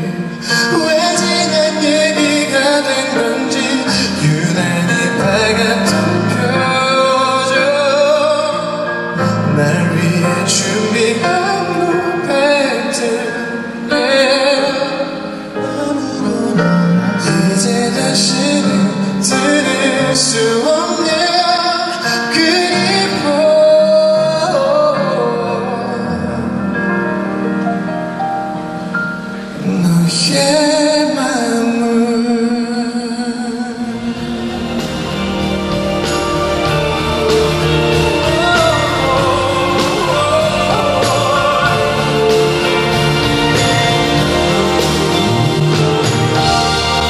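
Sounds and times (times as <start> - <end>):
man singing into a microphone: 0.0 - 27.3, 29.4 - 44.0
instrumental accompaniment: 0.0 - 47.0.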